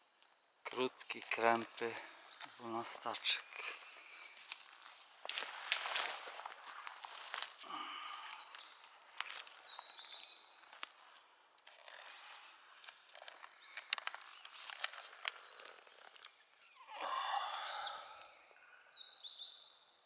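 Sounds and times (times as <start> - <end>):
songbird singing: 0.0 - 20.0
rustling in dry forest litter: 1.2 - 16.8.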